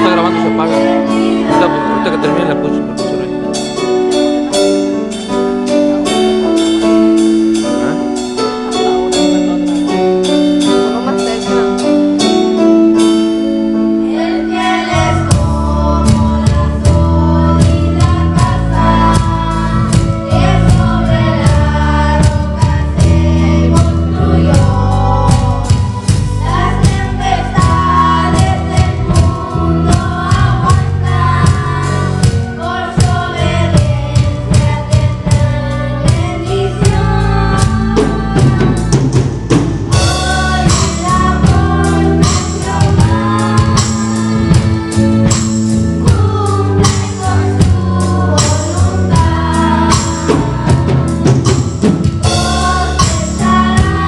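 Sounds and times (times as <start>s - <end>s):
voices singing: 0.0s - 4.1s, 13.9s - 54.0s
gospel song over loudspeakers: 0.0s - 54.0s
keyboard melody: 0.0s - 54.0s
bass and drums: 14.0s - 54.0s.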